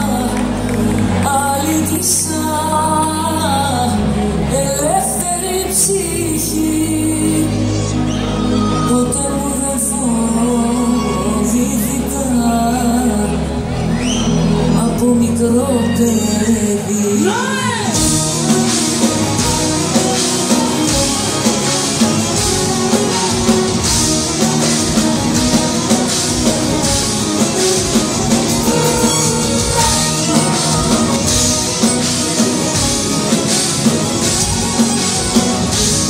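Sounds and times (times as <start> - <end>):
bouzoukis playing: 17.9 - 36.0
drum beat: 18.0 - 36.0.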